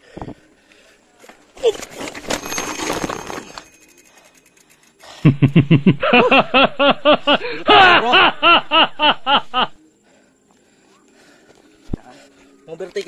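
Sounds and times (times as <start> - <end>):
person laughing: 5.2 - 9.8.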